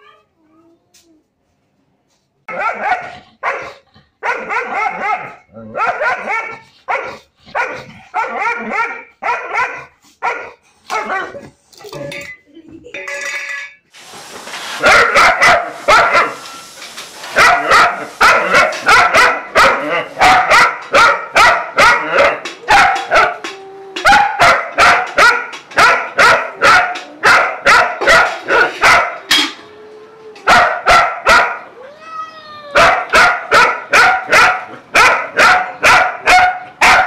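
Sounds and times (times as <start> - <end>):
dog barking: 2.5 - 11.4, 14.8 - 16.4, 17.4 - 23.4, 24.0 - 29.2, 30.5 - 31.7, 32.8 - 37.0
steady hiss: 13.9 - 20.2.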